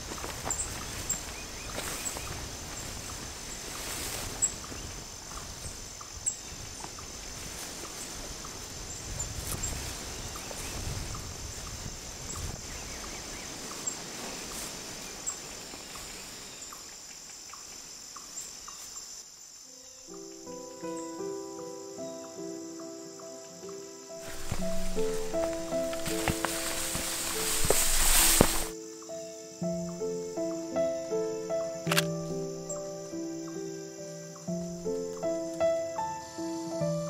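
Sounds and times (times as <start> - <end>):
footsteps through tall grass: 0.0 - 16.5, 24.2 - 28.8, 31.9 - 33.0
insects trilling: 0.0 - 37.0
sharp clicks: 31.8 - 32.2.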